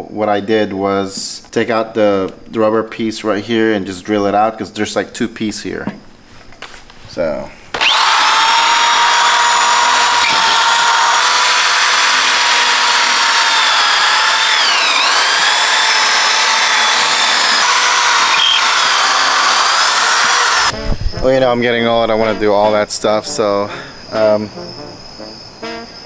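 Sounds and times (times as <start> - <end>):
electric drill whining: 7.7 - 20.8.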